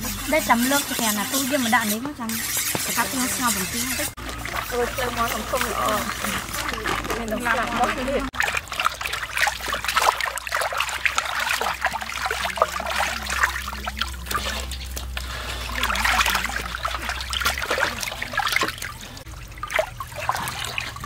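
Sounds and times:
water splashing in metal basin: 0:00.0 - 0:21.0
water dripping: 0:00.2 - 0:21.0.

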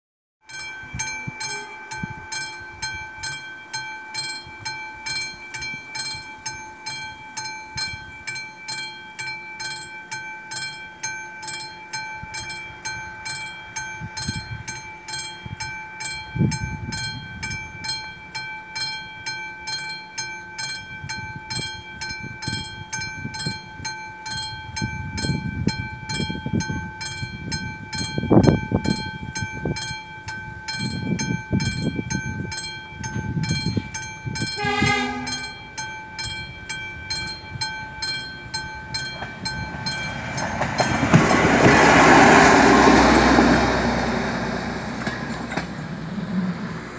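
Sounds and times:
level crossing warning bell: 0:00.4 - 0:46.9
diesel railcar passing: 0:00.5 - 0:46.9
train horn blast: 0:01.4 - 0:02.3, 0:34.5 - 0:35.7.

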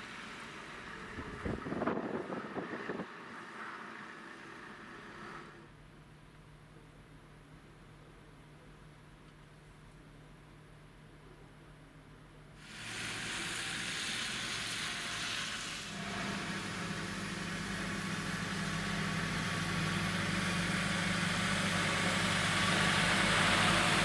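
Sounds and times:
tyres hissing on wet road: 0:00.0 - 0:01.6, 0:02.3 - 0:05.7, 0:12.6 - 0:24.0
lorry diesel engine running: 0:15.9 - 0:24.0.

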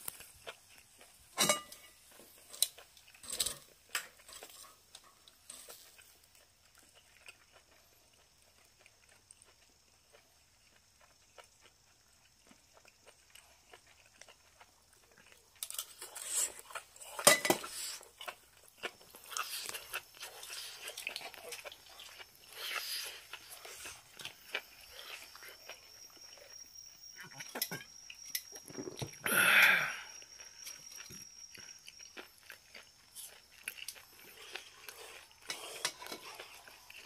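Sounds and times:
crackling: 0:00.0 - 0:37.0
tongs scraping on grill: 0:01.4 - 0:06.3, 0:15.6 - 0:18.2, 0:34.3 - 0:36.6.

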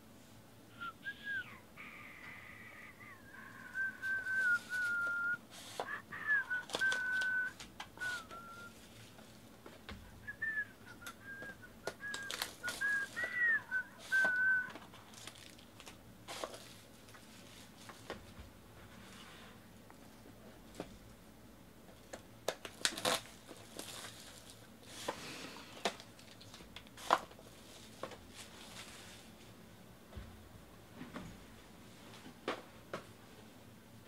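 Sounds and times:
man whistling: 0:00.7 - 0:08.8, 0:10.2 - 0:14.8
foil wrappers crinkling and tearing: 0:03.8 - 0:09.2, 0:10.4 - 0:18.2, 0:22.0 - 0:25.2, 0:25.8 - 0:29.3.

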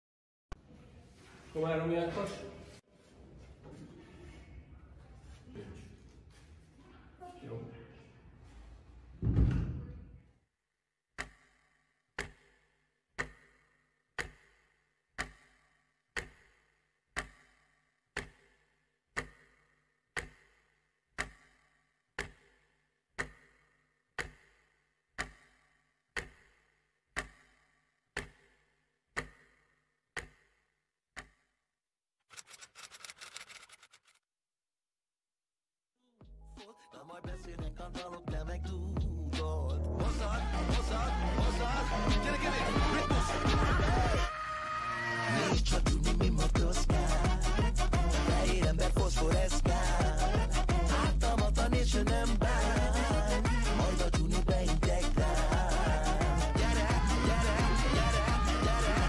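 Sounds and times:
clock ticking: 0:11.2 - 0:11.5, 0:12.2 - 0:12.6, 0:13.2 - 0:13.6, 0:14.2 - 0:14.6, 0:15.2 - 0:15.6, 0:16.2 - 0:16.6, 0:17.2 - 0:17.6, 0:18.2 - 0:18.5, 0:19.2 - 0:19.6, 0:20.2 - 0:20.5, 0:21.2 - 0:21.6, 0:22.2 - 0:22.6, 0:23.2 - 0:23.6, 0:24.2 - 0:24.6, 0:25.2 - 0:25.6, 0:26.2 - 0:26.6, 0:27.2 - 0:27.5, 0:28.2 - 0:28.5, 0:29.2 - 0:29.5, 0:30.2 - 0:30.5, 0:31.2 - 0:31.4.

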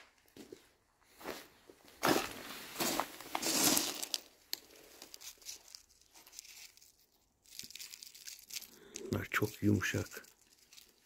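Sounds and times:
stones crunching and grating: 0:02.0 - 0:11.0
stones clicking in palm: 0:03.4 - 0:11.0.

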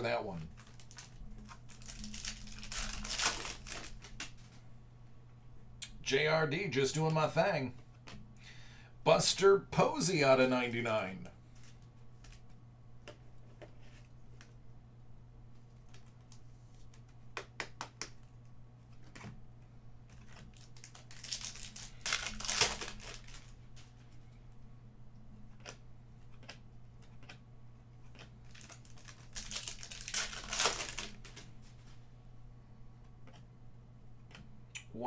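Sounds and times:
foil wrappers crinkling and tearing: 0:00.5 - 0:04.5, 0:20.1 - 0:23.8, 0:28.1 - 0:31.8.

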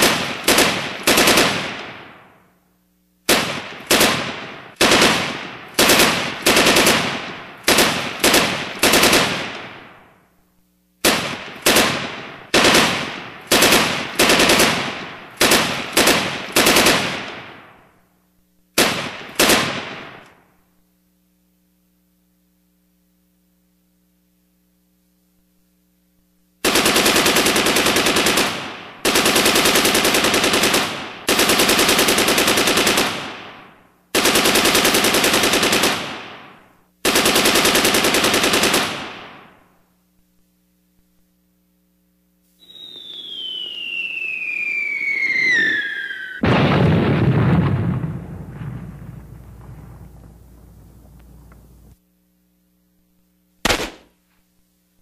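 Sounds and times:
automatic machine-gun fire: 0:00.0 - 0:02.4, 0:03.3 - 0:10.2, 0:11.0 - 0:18.0, 0:18.8 - 0:20.4, 0:26.6 - 0:39.8, 0:44.6 - 0:52.0, 0:53.6 - 0:54.1
single gunshots: 0:00.0 - 0:02.4, 0:03.3 - 0:10.1, 0:11.0 - 0:17.8, 0:18.8 - 0:20.4, 0:46.4 - 0:52.0, 0:53.6 - 0:54.2.

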